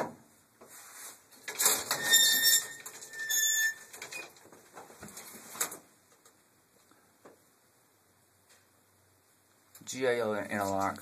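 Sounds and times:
elevator doors scraping and rattling: 1.4s - 4.4s.

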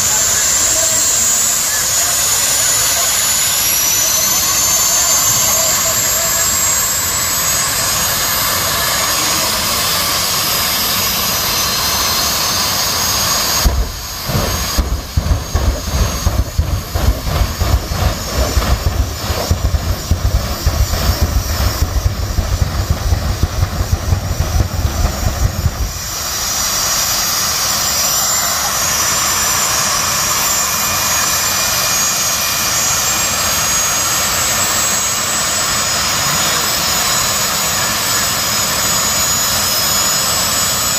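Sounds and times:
jet turbine engines roaring: 0.0s - 40.9s
afterburner deep pulses: 10.2s - 27.4s.

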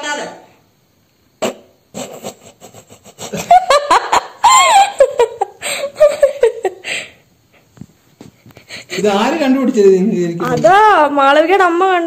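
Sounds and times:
man and woman laughing: 1.9s - 7.2s
high squeal of laughter: 2.0s - 6.7s.

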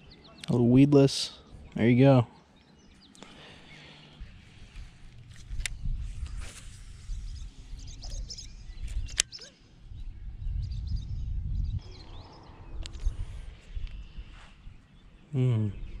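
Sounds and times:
wind rumble on microphone: 4.2s - 16.0s
faint bird chirps: 5.6s - 16.0s
sharp clicks: 8.9s - 9.5s.

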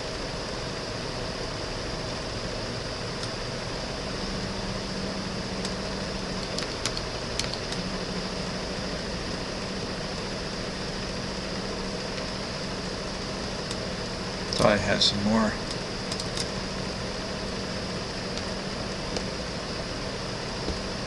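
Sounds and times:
fan-like room hum and hiss: 0.0s - 21.0s
light clicks: 15.6s - 16.5s.

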